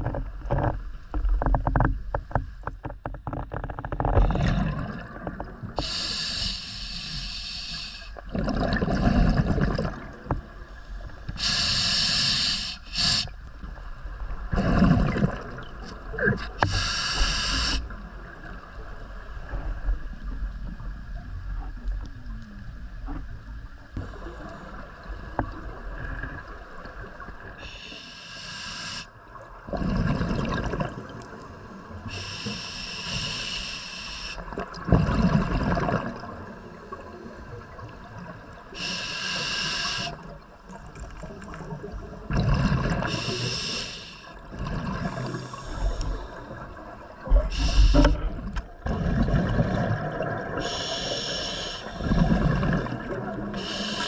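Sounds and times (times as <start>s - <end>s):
exhaled bubbles gurgling: 4.0s - 6.4s, 8.2s - 10.6s, 14.4s - 18.7s, 29.3s - 32.4s, 34.4s - 39.0s, 40.2s - 54.0s
diver inhaling through regulator: 5.8s - 8.2s, 11.3s - 13.4s, 16.5s - 17.9s, 27.6s - 29.1s, 32.1s - 34.4s, 38.8s - 40.3s, 42.6s - 44.4s, 45.1s - 46.5s, 47.4s - 48.3s, 50.6s - 54.0s.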